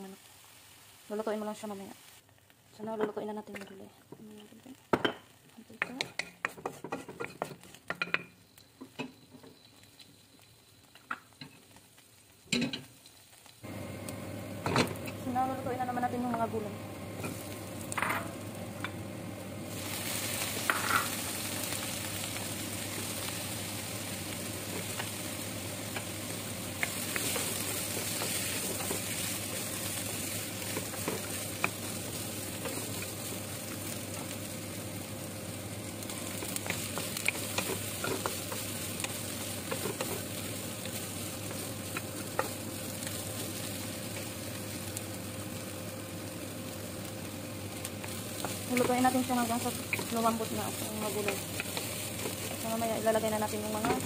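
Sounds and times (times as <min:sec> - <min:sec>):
vegetables sizzling in oil: 0:00.0 - 0:54.0
spatula scraping a pan: 0:06.1 - 0:07.8.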